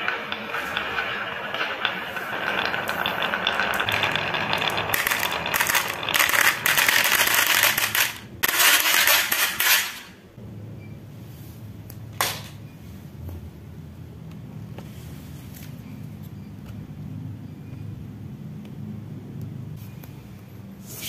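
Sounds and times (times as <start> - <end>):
glass marbles clattering: 0.0 - 10.1.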